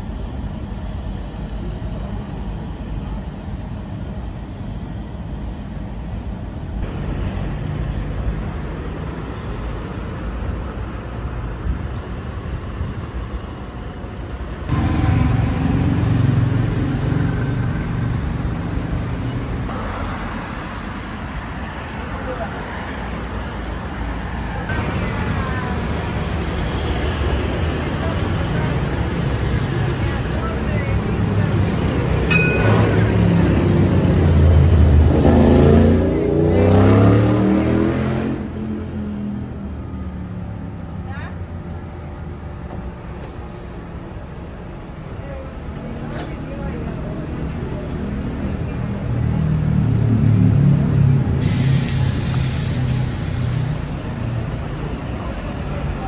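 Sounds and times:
tram motor whine: 0:00.0 - 0:35.3
passing road traffic: 0:00.0 - 0:56.0
tram rumble: 0:00.0 - 0:56.0.

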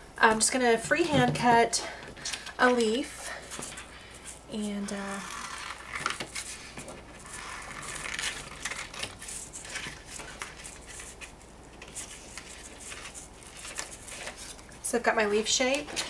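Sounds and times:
paper rustling: 0:05.1 - 0:14.8.

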